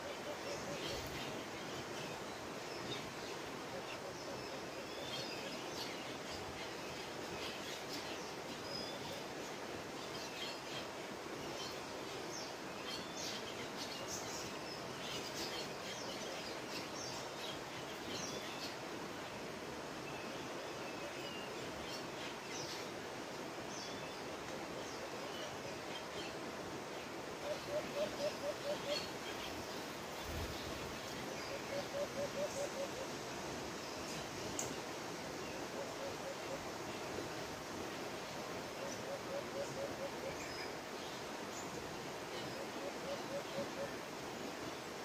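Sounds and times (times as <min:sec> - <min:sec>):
steady woodland hiss: 0:00.0 - 0:45.0.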